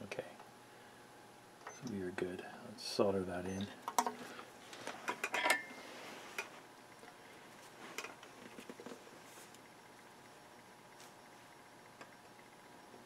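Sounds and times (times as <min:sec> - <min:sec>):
tools clattering on a workbench: 0:05.0 - 0:05.7.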